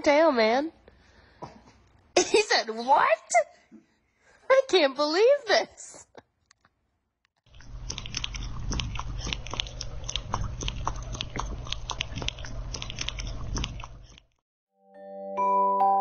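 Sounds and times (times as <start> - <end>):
kitten crunching dry kibble: 7.5 - 14.2.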